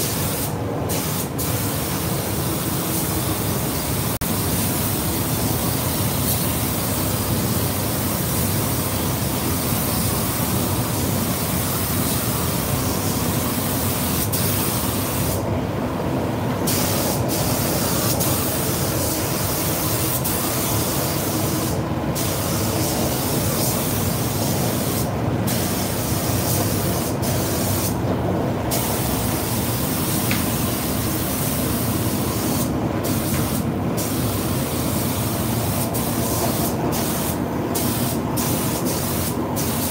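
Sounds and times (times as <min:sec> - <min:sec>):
spray gun hissing: 0:00.0 - 0:15.5, 0:16.6 - 0:28.0, 0:28.7 - 0:39.9.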